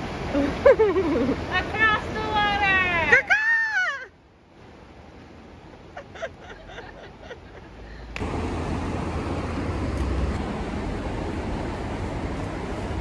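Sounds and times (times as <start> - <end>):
loud rushing noise with rumble: 8.2 - 13.0.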